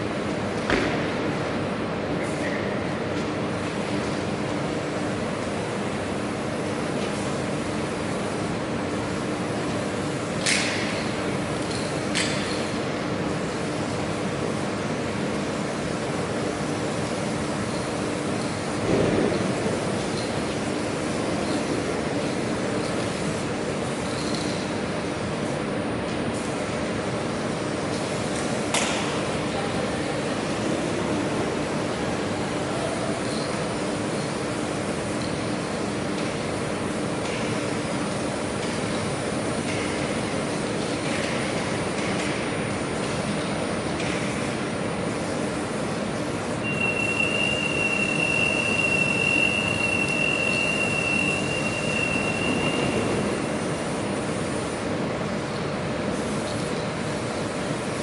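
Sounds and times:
rushing mechanical hum: 0.0s - 58.0s
thin high whistle: 46.6s - 53.1s.

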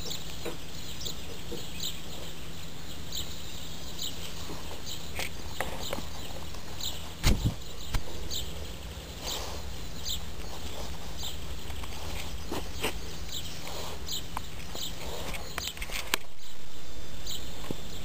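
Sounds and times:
dog chewing beetle crunches: 9.1s - 16.4s.

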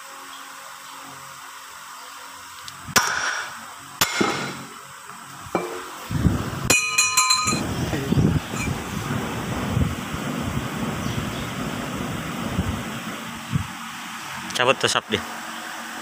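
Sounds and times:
hammer striking metal hub: 4.0s - 4.7s, 5.6s - 5.9s, 6.7s - 7.6s
low rumbling noise: 5.4s - 15.2s.

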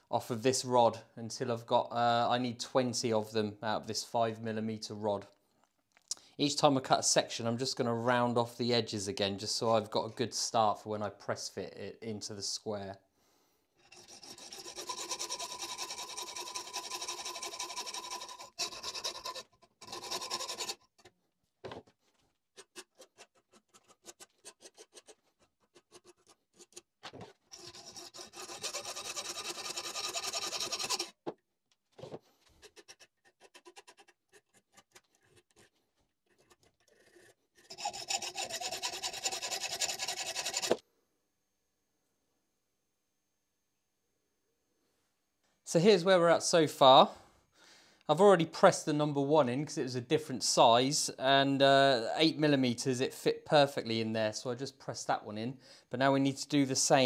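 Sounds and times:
file rasping on brass rod: 13.8s - 21.1s, 22.5s - 26.9s, 27.5s - 31.2s, 32.5s - 40.8s
hacksaw strokes: 13.8s - 21.1s, 22.5s - 31.2s, 32.5s - 40.8s.

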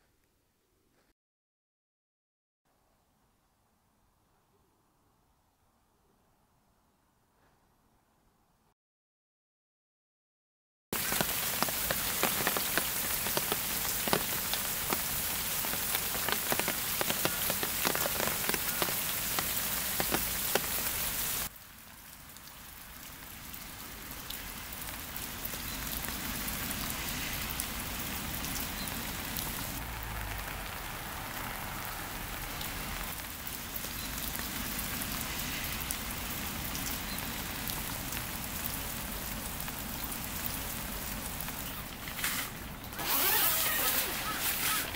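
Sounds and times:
sharp raindrop hits: 11.0s - 21.6s, 23.2s - 44.9s
steady rain hiss: 11.0s - 44.9s.

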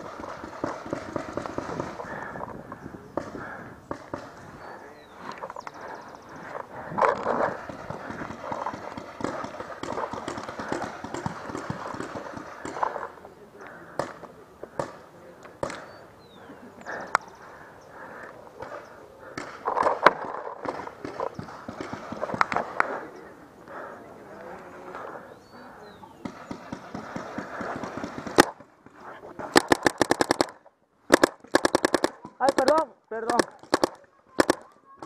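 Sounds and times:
paintball markers firing: 0.0s - 2.3s, 7.0s - 13.2s, 13.9s - 16.0s, 18.6s - 22.9s, 26.2s - 34.8s.

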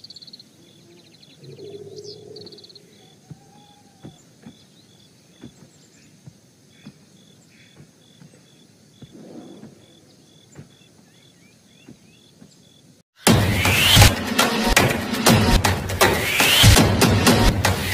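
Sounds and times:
insect chirping: 0.0s - 13.0s.

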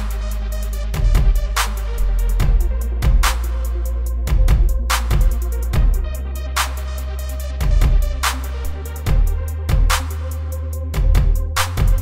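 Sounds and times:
deep bass: 0.0s - 12.0s
electronic music: 0.0s - 12.0s
heavy drum beat: 1.0s - 3.5s, 4.3s - 6.1s.

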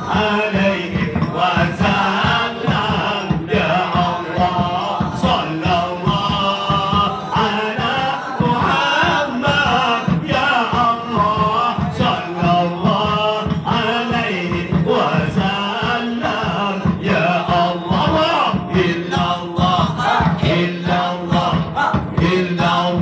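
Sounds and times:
men chanting a capella: 0.0s - 23.0s
mouth drum beats: 0.0s - 23.0s.

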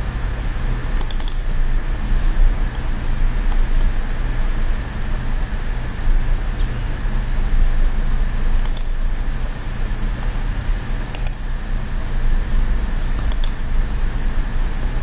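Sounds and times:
steady low hum: 0.0s - 15.0s
computer mouse clicking: 1.0s - 1.5s, 8.6s - 9.1s, 11.1s - 11.4s, 13.2s - 13.7s.

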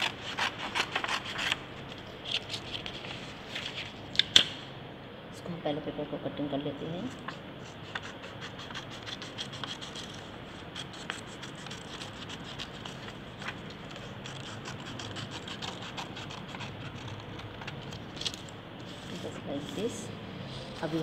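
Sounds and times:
scissors cutting paper: 0.0s - 1.6s, 7.8s - 18.5s.

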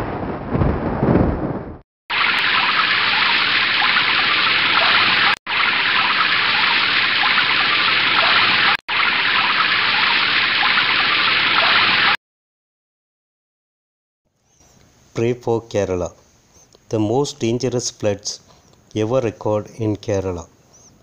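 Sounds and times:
rushing water: 2.1s - 12.2s.

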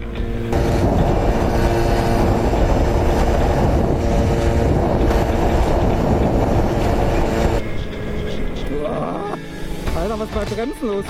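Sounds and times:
moped engines running: 0.0s - 9.5s
wind on microphone: 0.5s - 7.7s.

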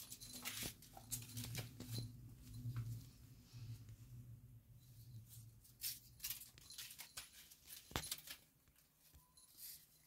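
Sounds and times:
crumpled paper crinkling: 5.8s - 8.9s.

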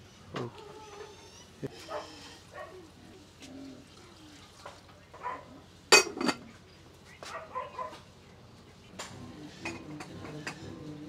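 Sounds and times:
dog barking: 1.8s - 2.8s, 5.2s - 5.6s, 7.2s - 8.0s.

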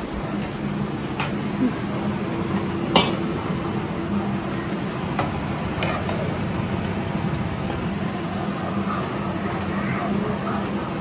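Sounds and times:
low mechanical hum: 0.0s - 11.0s
ladle clinking against pot: 2.9s - 3.2s.

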